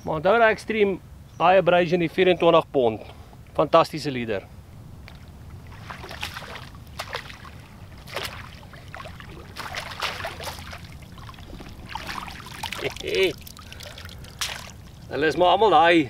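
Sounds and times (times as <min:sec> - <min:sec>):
low steady rumble: 0:00.0 - 0:16.0
water splashing and sloshing: 0:05.0 - 0:15.6.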